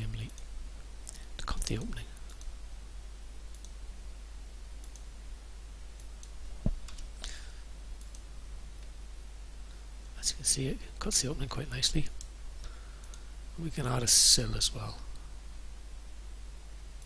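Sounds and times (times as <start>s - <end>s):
steady low hum: 0.0s - 17.0s
computer mouse clicks: 1.1s - 2.6s, 3.5s - 3.8s, 4.8s - 5.1s, 8.0s - 8.9s, 13.0s - 13.2s.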